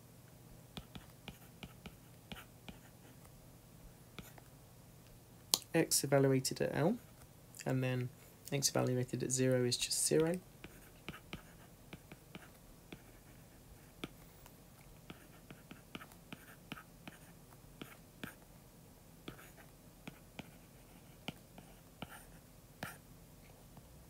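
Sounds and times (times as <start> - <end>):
stylus writing on glass screen: 0.8 - 3.2, 9.7 - 14.2, 15.0 - 18.4, 19.3 - 23.0.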